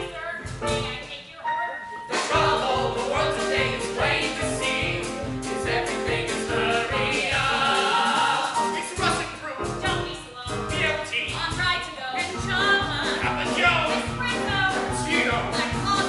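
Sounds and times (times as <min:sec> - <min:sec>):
instrumental accompaniment: 0:00.0 - 0:16.0
vocal ensemble singing show tune: 0:00.0 - 0:16.0.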